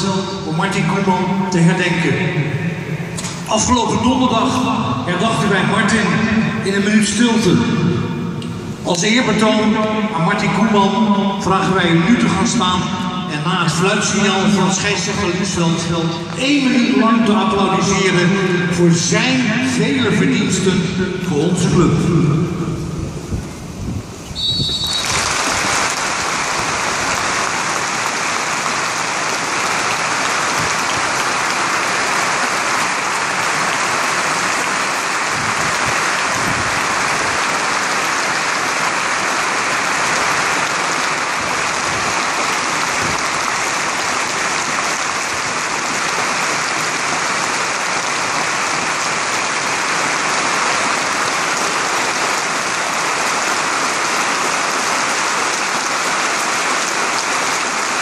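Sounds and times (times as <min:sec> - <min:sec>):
stadium crowd applauding: 0:24.4 - 0:58.0.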